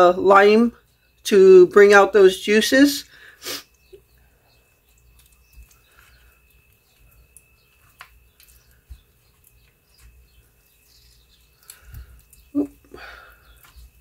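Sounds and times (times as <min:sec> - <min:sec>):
hands rubbing raw meat: 0:04.6 - 0:12.8, 0:13.5 - 0:14.0.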